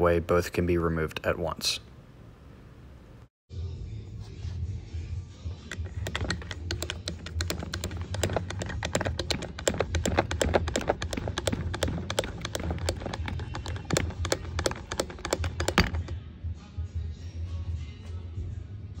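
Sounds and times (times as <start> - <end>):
grease gun lever clicking: 5.7 - 16.1.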